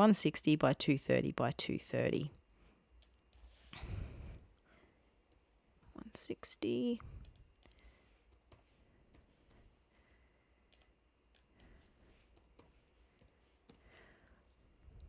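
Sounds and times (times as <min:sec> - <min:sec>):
faint computer keyboard clicks: 0:04.2 - 0:06.0.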